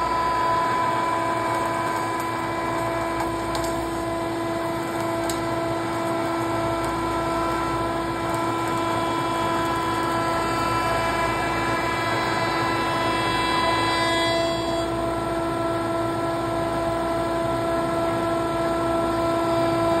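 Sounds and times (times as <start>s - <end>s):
router motor whining: 0.0s - 16.1s.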